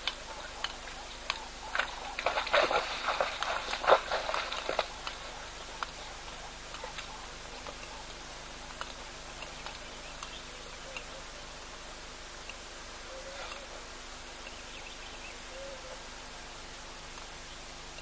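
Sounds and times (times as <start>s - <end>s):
hooves splashing through water: 0.0s - 10.4s
faint outdoor hiss: 0.0s - 18.0s.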